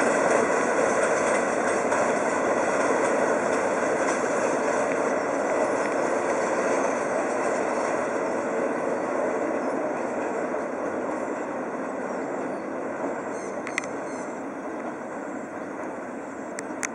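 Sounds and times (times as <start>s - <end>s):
train wheels rumbling on track: 0.0s - 16.9s
sharp click: 13.6s - 14.0s.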